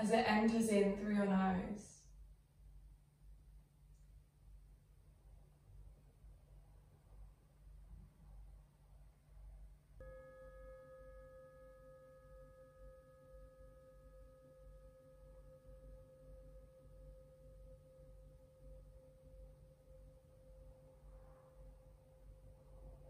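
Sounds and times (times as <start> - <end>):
singing bowl ringing: 10.0 - 23.0.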